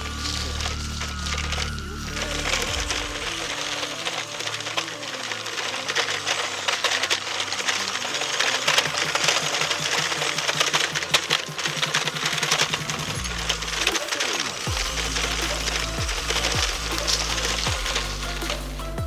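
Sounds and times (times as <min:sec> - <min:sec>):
toy truck electric motor rattling: 0:00.0 - 0:19.0
wheels clicking: 0:00.0 - 0:19.0.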